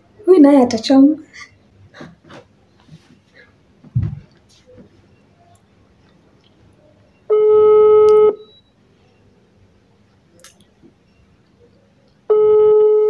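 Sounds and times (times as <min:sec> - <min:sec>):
phone ringback tone: 0:07.3 - 0:08.6, 0:12.3 - 0:13.0.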